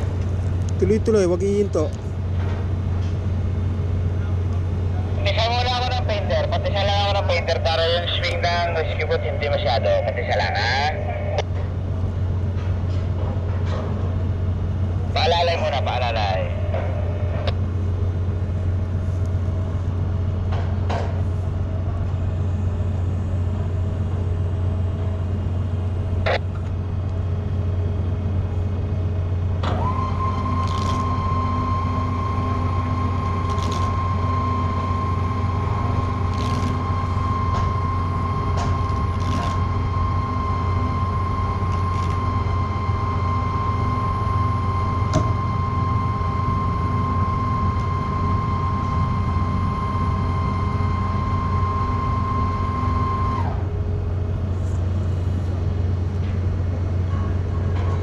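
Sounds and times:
low hum of ship machinery: 0:00.0 - 0:58.0
high-pitched whine: 0:14.8 - 0:20.4, 0:21.8 - 0:26.9, 0:27.5 - 0:56.0.

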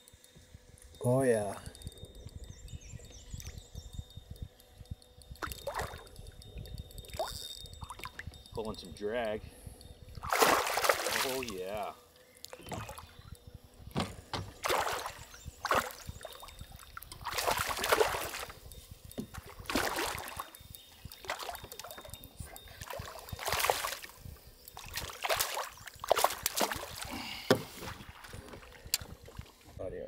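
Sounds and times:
fish splashing in water: 0:10.2 - 0:11.5, 0:14.6 - 0:16.6, 0:17.2 - 0:18.5, 0:19.6 - 0:20.5, 0:24.8 - 0:27.1.

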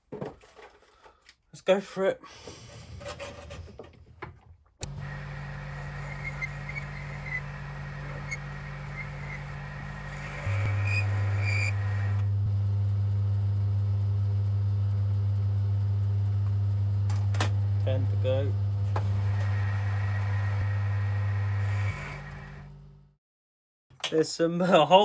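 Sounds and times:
lathe running with low hum: 0:04.8 - 0:23.1.

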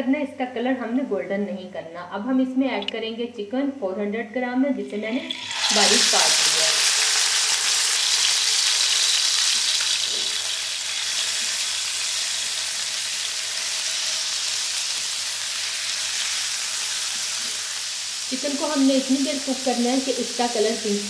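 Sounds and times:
chicken sizzling in hot oil: 0:05.2 - 0:21.0.

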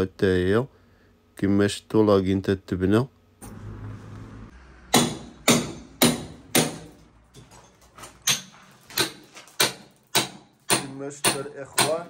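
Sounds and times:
hammer striking masonry: 0:04.9 - 0:07.6, 0:08.2 - 0:12.0.

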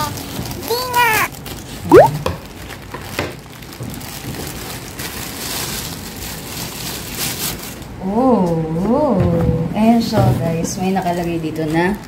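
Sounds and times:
plastic wrap rustling: 0:00.0 - 0:07.9.

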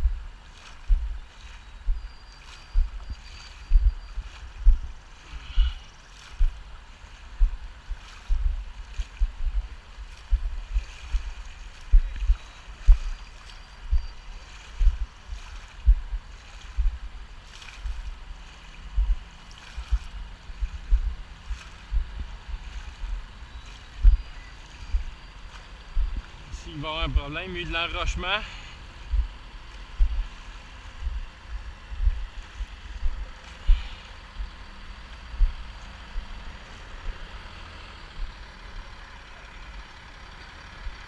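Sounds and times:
low thumps: 0:00.0 - 0:02.1, 0:02.8 - 0:04.0, 0:04.6 - 0:05.8, 0:06.4 - 0:13.2, 0:13.8 - 0:14.2, 0:14.8 - 0:15.1, 0:15.8 - 0:17.2, 0:18.9 - 0:19.2, 0:19.8 - 0:23.3, 0:23.9 - 0:27.4, 0:28.0 - 0:36.4
floodwater sloshing: 0:00.0 - 0:37.6.

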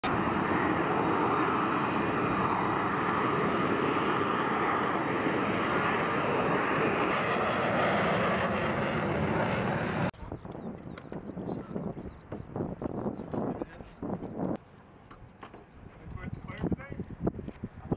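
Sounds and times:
jet engine roaring: 0:00.0 - 0:13.5.

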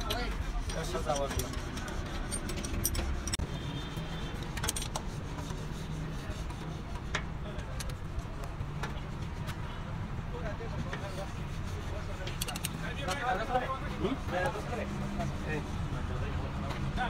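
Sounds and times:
hand tools clicking on metal: 0:00.0 - 0:03.4, 0:12.3 - 0:13.2.

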